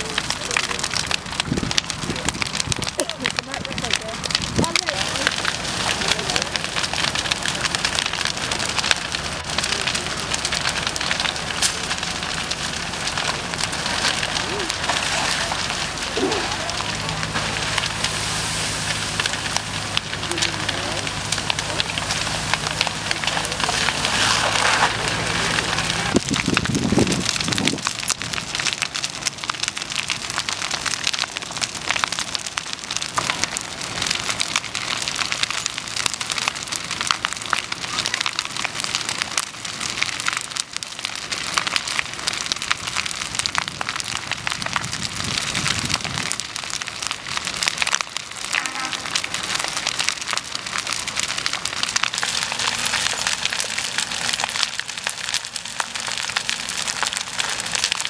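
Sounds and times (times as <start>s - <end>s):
fire crackling and popping: 0.0s - 58.0s
flame hissing: 10.3s - 20.3s, 21.0s - 27.8s.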